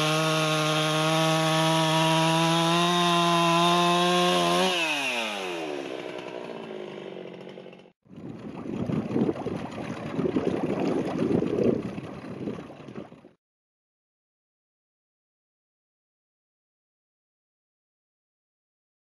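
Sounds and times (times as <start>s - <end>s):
chainsaw cutting wood: 0.0s - 8.9s.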